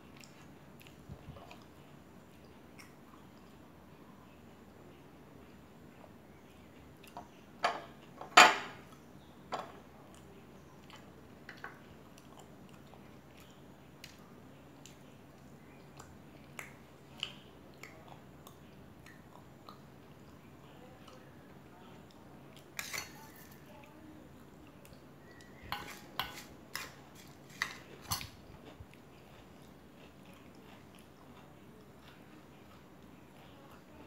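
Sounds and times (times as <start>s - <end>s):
spoon scraping steel bowl: 25.6s - 28.2s
chewing crisp snacks: 26.8s - 34.0s.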